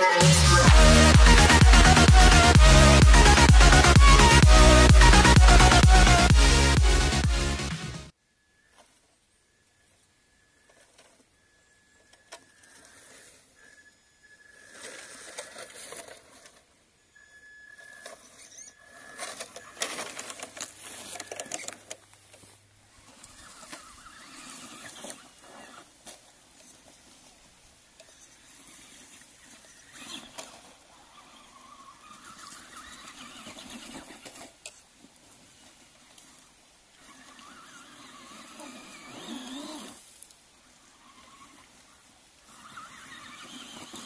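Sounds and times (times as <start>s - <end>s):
toy truck electric motor whining: 12.0s - 16.7s, 17.6s - 27.3s, 28.0s - 34.6s, 35.2s - 44.0s
tyres crackling through twigs: 17.7s - 44.0s.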